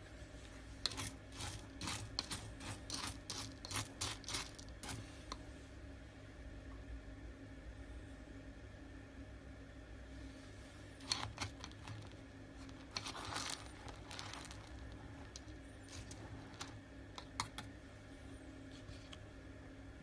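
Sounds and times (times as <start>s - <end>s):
scoop scraping litter: 0.8s - 5.1s, 11.0s - 16.8s
cat litter pellets rattling: 0.9s - 5.0s, 11.0s - 16.7s.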